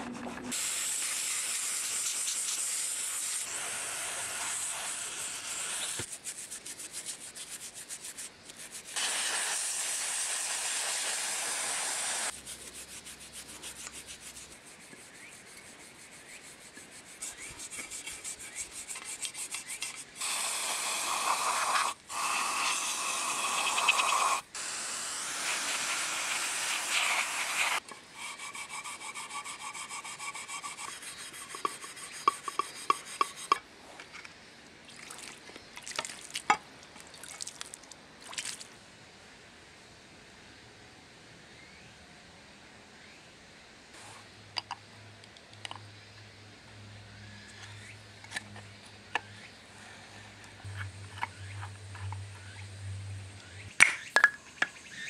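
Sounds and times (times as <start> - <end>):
toothbrush scrubbing metal: 28.2 - 33.6.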